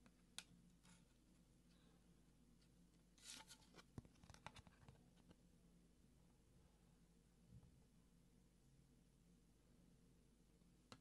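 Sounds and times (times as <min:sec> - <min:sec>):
cards rustling and clicking: 0:03.2 - 0:05.0.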